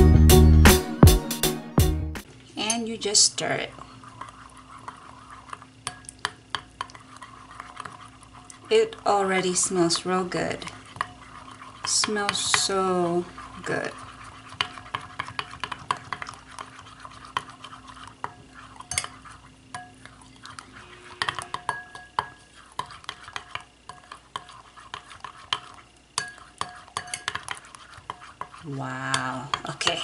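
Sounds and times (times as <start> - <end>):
utensil scraping glass bowl: 3.4 - 30.0.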